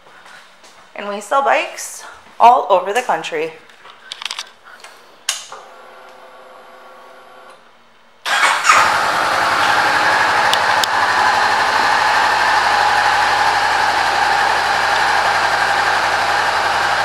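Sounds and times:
electric starter cranking: 8.3s - 17.0s
motorcycle engine idling: 8.4s - 17.0s.

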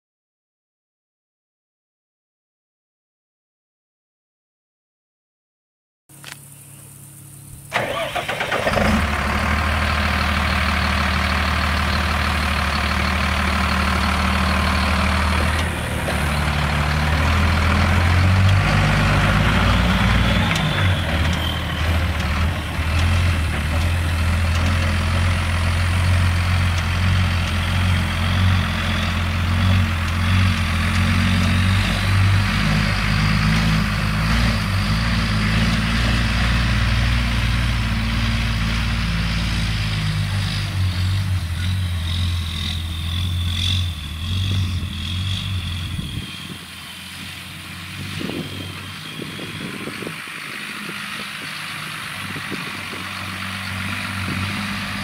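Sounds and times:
diesel truck engine idling: 7.4s - 35.5s, 39.6s - 55.0s.

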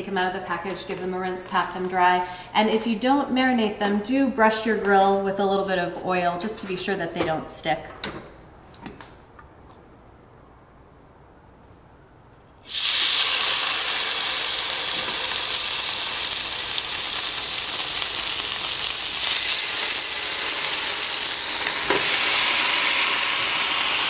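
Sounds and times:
chicken sizzling on a grill: 12.6s - 24.0s.

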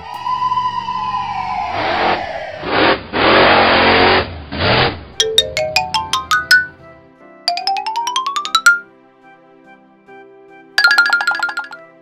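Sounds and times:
rising plucked bell-like notes: 5.2s - 6.9s, 7.5s - 8.9s, 10.8s - 11.9s
soft background music: 5.2s - 12.0s.

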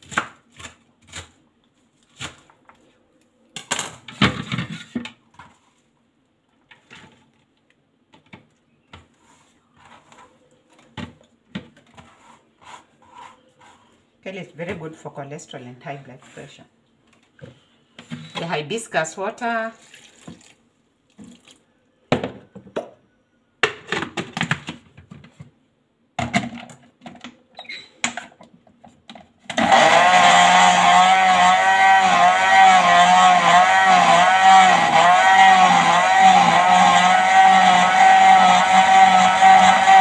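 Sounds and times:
blender motor running: 29.5s - 40.0s.

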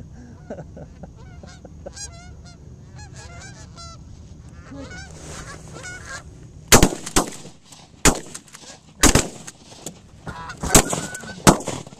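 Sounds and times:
geese honking: 0.4s - 6.3s, 10.2s - 11.6s
shotgun blasts: 6.7s - 9.6s, 10.6s - 11.9s.

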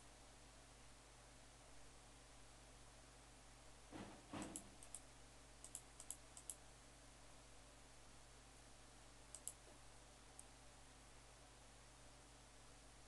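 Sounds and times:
low steady hum: 0.0s - 13.0s
faint computer mouse clicks: 4.4s - 6.6s, 9.3s - 9.7s.

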